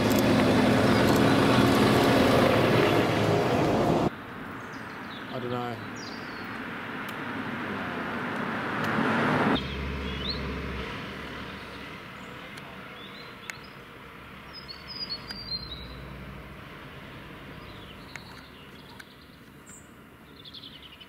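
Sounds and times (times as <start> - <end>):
diesel engines rumbling: 0.0 - 4.5, 6.6 - 20.4
small birds chirping: 4.4 - 7.2, 9.6 - 10.5, 11.2 - 21.0.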